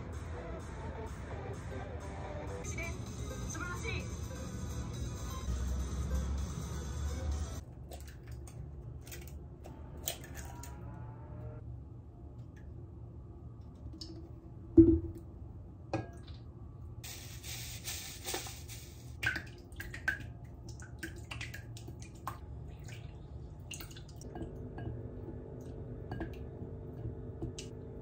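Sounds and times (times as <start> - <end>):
steady hum: 9.0 - 28.0
hiss: 17.0 - 19.2.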